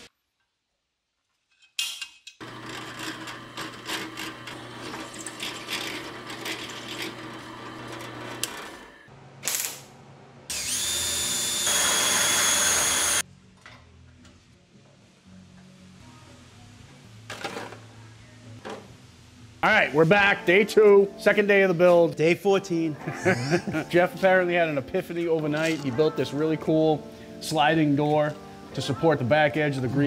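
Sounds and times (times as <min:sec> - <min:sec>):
drill press drilling steel: 0:02.4 - 0:09.1, 0:10.5 - 0:13.2.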